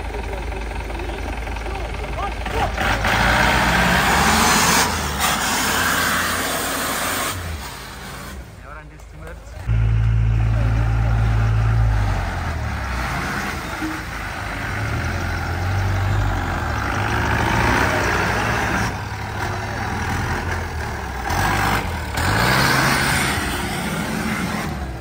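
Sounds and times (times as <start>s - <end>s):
off-road vehicle engine revving: 0.0s - 25.0s.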